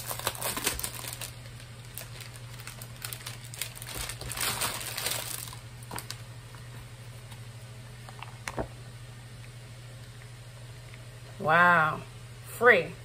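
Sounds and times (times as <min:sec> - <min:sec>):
plastic sleeve crinkling: 0:00.0 - 0:07.4.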